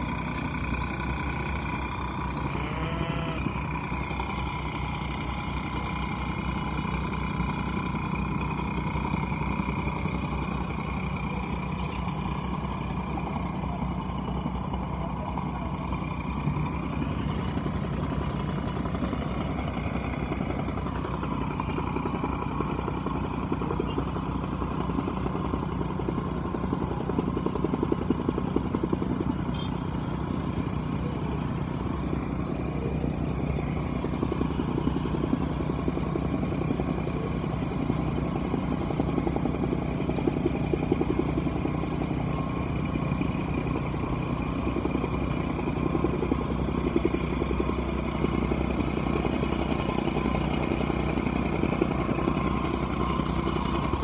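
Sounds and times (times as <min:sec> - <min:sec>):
motorcycles passing: 0:00.0 - 0:24.8
bulldozer diesel engine running: 0:00.0 - 0:54.0.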